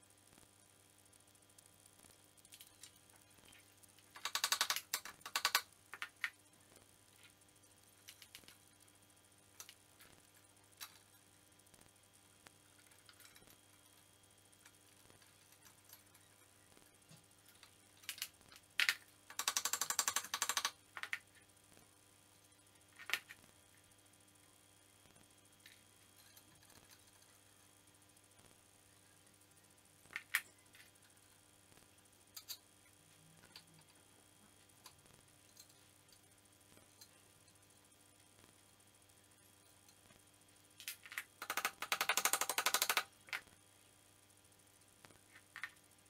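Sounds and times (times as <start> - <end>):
ratchet tool clicking: 4.1 - 6.1, 41.1 - 43.1.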